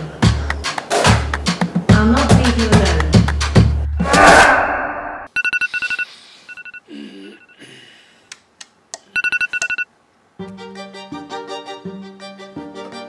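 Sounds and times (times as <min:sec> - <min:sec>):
loud whoosh: 0:04.0 - 0:05.3
phone alert beeps: 0:05.3 - 0:07.6, 0:09.2 - 0:09.9.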